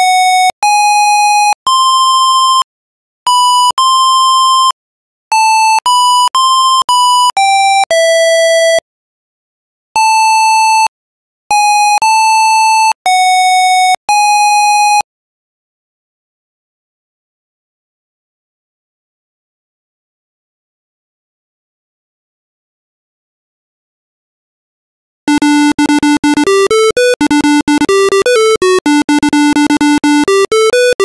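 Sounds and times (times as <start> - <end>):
buzzy computer speaker beeps: 25.3 - 31.0.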